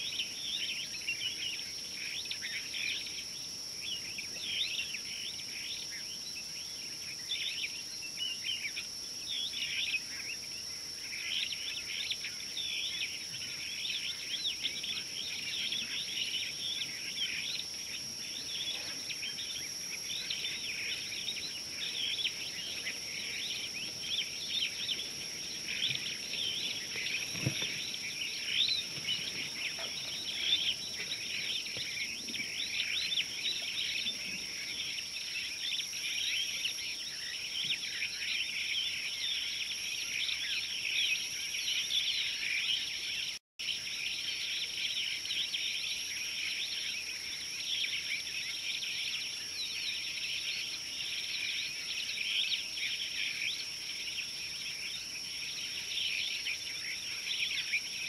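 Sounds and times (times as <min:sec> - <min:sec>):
birds chirping: 0:11.0 - 0:43.4.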